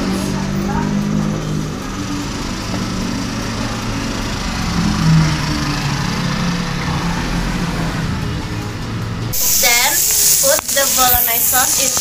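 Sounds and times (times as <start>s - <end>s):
small engine humming: 0.0s - 9.4s.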